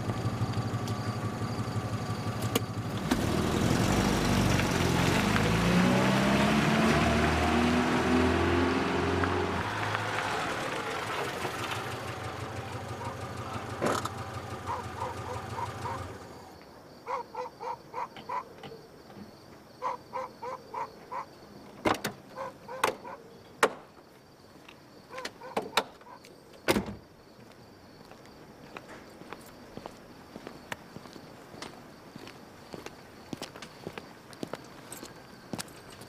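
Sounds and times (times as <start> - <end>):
car engine running: 0.0 - 16.5.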